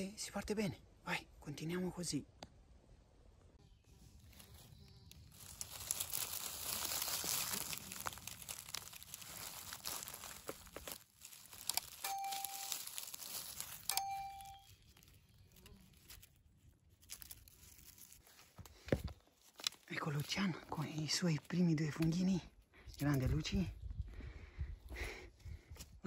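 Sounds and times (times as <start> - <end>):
hands rustling through dry leaves: 4.0 - 21.6
mushroom tearing from ground: 4.2 - 20.4
chime-like tones: 12.0 - 15.0.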